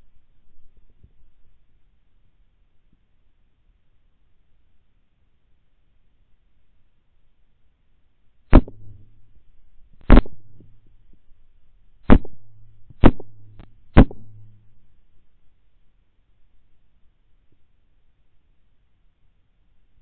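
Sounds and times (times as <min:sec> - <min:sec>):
rifle shots cracking: 0:08.5 - 0:09.2, 0:10.0 - 0:10.8, 0:12.1 - 0:12.4, 0:13.0 - 0:14.6.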